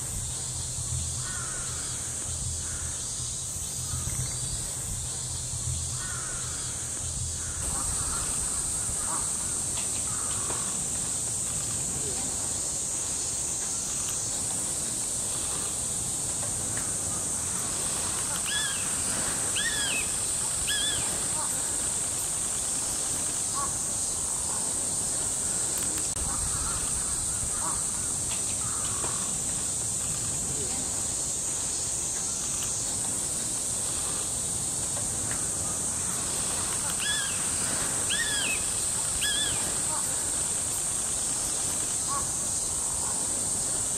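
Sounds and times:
high-pitched hiss: 0.0s - 43.9s
insect chorus: 0.0s - 43.9s
crows cawing: 1.2s - 2.9s, 6.0s - 10.7s, 26.4s - 29.2s
bird call: 18.3s - 21.6s, 36.8s - 40.2s.

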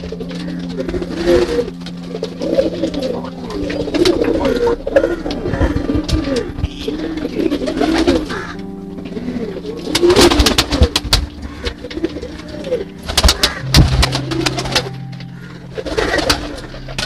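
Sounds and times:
pigeons cooing: 0.0s - 17.0s
wing flapping and scuffling: 9.2s - 17.0s.

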